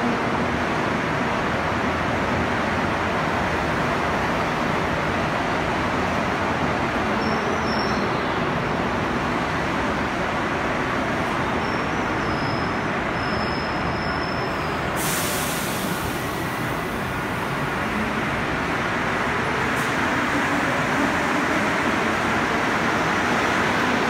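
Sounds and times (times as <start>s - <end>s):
subway train rumble: 0.0s - 24.0s
high hiss: 15.0s - 16.9s.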